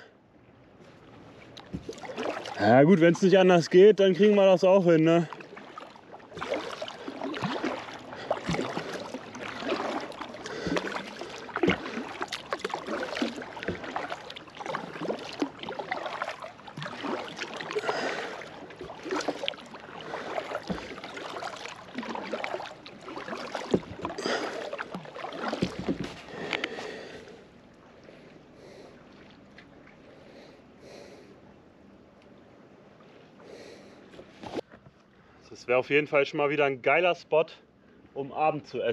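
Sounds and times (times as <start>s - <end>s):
paddle splashing in water: 0.9s - 31.2s.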